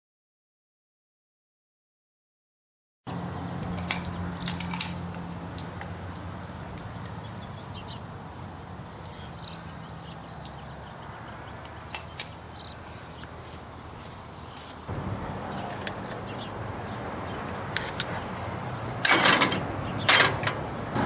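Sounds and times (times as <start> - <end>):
birds chirping: 3.1 - 21.0
engine running: 3.1 - 21.0
sharp metallic clinks: 3.6 - 5.3, 11.6 - 13.0.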